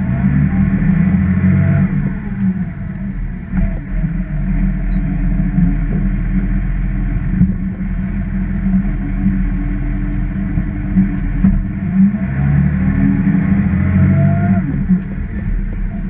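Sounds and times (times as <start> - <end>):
diesel truck engine drone: 0.0 - 16.0.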